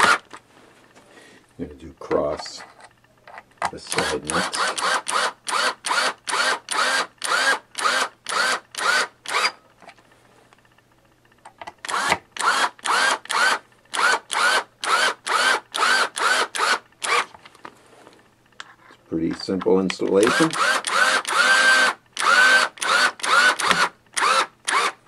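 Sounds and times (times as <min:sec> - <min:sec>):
power drill driving screws: 0:00.0 - 0:00.2, 0:03.9 - 0:09.6, 0:11.8 - 0:17.3, 0:20.2 - 0:25.0.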